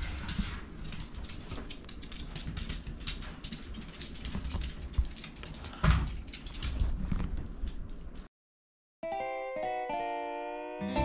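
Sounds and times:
dog claws clicking on wooden floor: 0:00.1 - 0:08.3.

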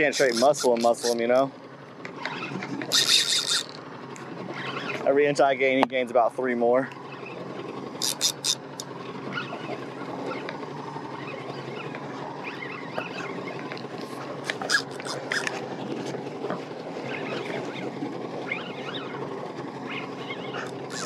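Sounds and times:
fishing reel cranking: 0:00.0 - 0:01.5, 0:02.8 - 0:03.8, 0:08.0 - 0:08.9, 0:12.4 - 0:15.7, 0:20.6 - 0:21.0
reel squeaks and clicks: 0:00.0 - 0:05.8, 0:06.9 - 0:21.0
wind and water noise: 0:00.0 - 0:21.0.

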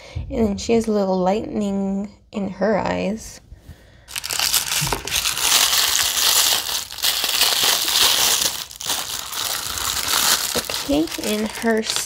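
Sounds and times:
plastic wrapper crinkling: 0:04.1 - 0:12.0.

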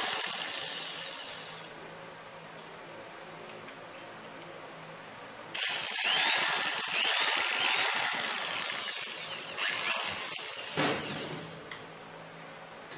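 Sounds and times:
electric drill motor whine: 0:00.0 - 0:01.7, 0:05.6 - 0:11.6.

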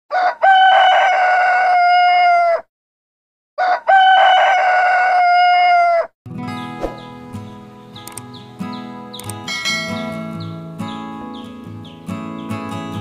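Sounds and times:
rooster crowing: 0:00.1 - 0:02.7, 0:03.6 - 0:06.1.

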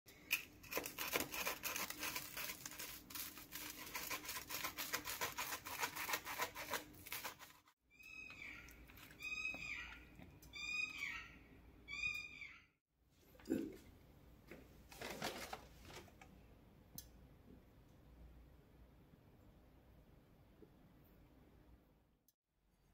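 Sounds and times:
knife sawing through crunchy bread: 0:00.6 - 0:07.8
high chirping call: 0:08.0 - 0:12.8.

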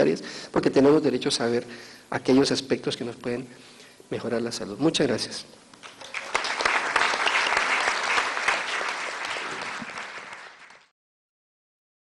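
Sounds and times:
audience applauding: 0:05.8 - 0:10.9.

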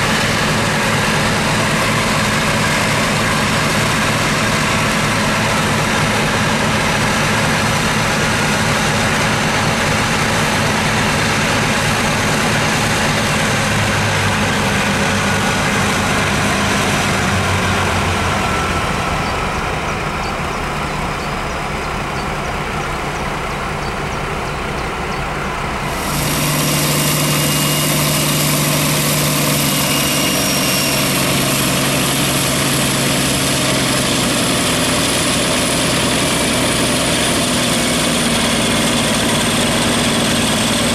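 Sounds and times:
locomotive diesel engine idling: 0:00.0 - 0:40.9
thin high whine: 0:24.8 - 0:34.4.

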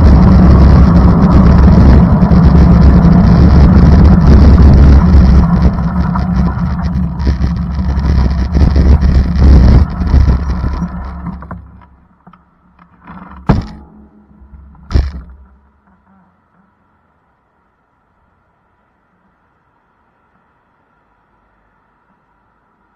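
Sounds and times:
sharp thumps: 0:00.0 - 0:16.0
vehicle rumble with crackling: 0:00.0 - 0:22.9.

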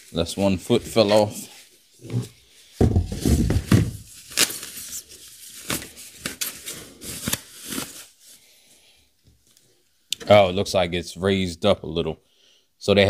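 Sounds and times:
dull handling bumps: 0:02.8 - 0:04.0
plastic wrapping crinkling: 0:03.1 - 0:08.4.

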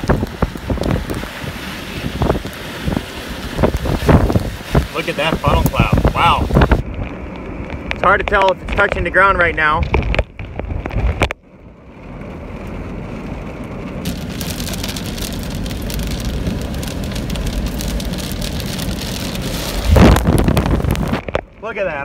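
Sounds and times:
wind buffeting microphone: 0:00.0 - 0:07.9, 0:14.1 - 0:21.5
heavy rain on windshield: 0:00.0 - 0:22.0.

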